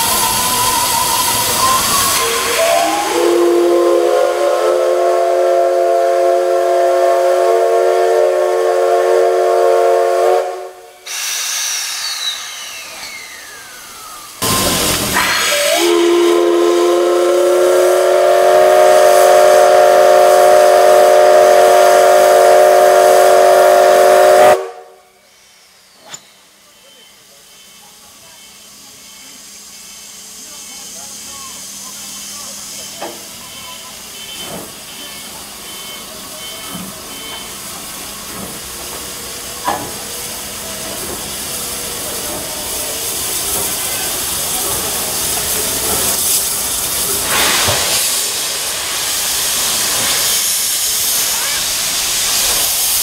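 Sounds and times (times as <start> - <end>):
steam whistle chord: 0.0 - 10.8, 14.4 - 25.0
steam hissing: 0.0 - 53.0.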